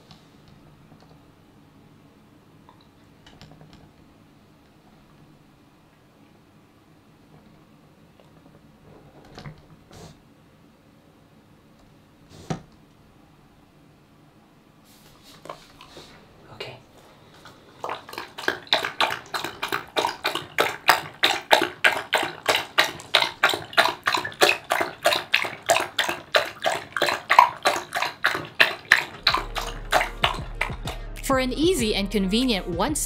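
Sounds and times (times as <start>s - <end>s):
dog lapping liquid: 15.4s - 16.3s, 17.0s - 31.0s.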